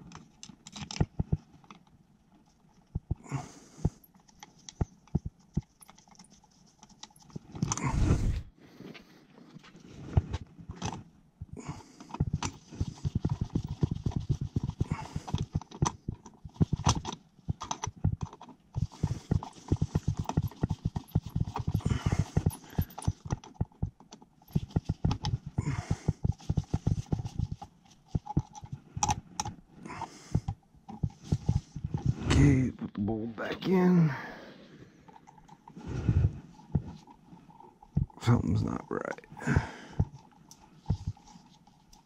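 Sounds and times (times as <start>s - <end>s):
irregular clicks taps and knocks: 0.0s - 3.2s, 3.8s - 7.8s, 10.3s - 29.6s.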